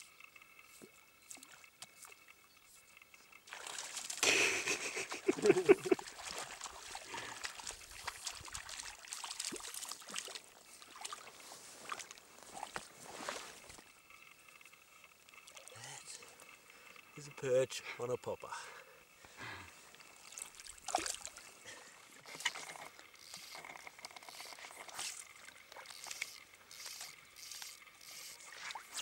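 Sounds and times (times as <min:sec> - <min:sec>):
fish splashing at water surface: 0:03.5 - 0:12.2, 0:20.2 - 0:21.6.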